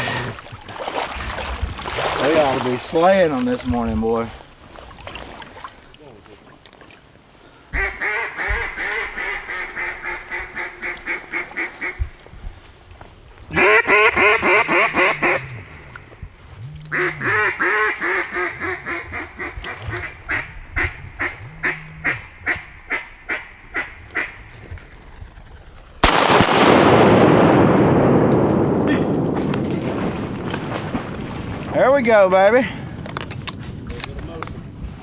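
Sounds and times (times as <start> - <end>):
duck call quacks: 7.8 - 12.0, 13.5 - 15.6, 16.9 - 24.5
fast loud duck call chatter: 13.6 - 15.4.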